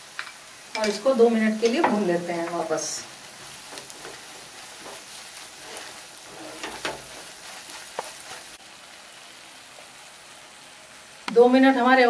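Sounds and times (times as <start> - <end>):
paste sizzling in hot oil: 0.0 - 11.2
spatula stirring and scraping: 1.8 - 8.6.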